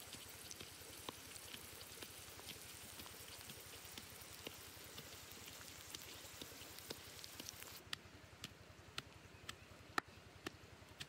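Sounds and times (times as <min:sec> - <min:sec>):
fire crackling: 0:00.0 - 0:07.8
food sizzling and bubbling: 0:00.0 - 0:07.8.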